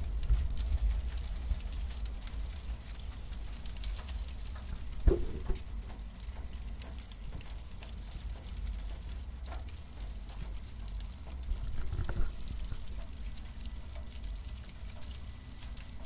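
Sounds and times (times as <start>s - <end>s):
cardboard fire crackling: 0.0s - 16.0s
low fire rumble: 0.0s - 16.0s
loud pop: 5.1s - 5.6s.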